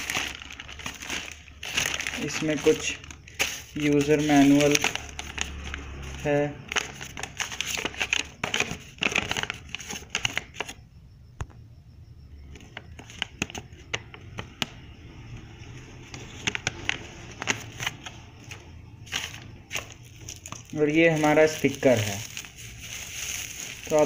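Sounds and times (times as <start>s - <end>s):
paper rustling and crinkling: 0.0s - 10.8s, 16.0s - 24.0s.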